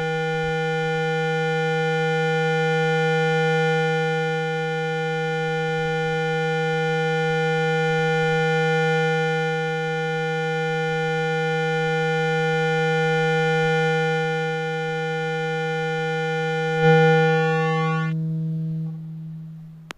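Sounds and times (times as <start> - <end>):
low buzzing speaker tone: 12.9 - 19.0.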